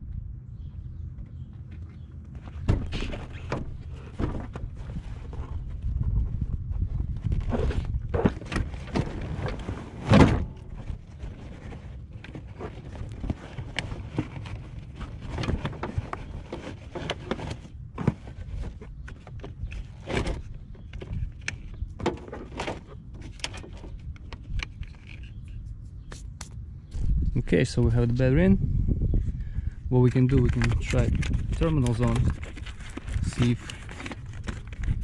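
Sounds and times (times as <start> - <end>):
car battery being handled: 8.1 - 25.6, 30.1 - 35.0.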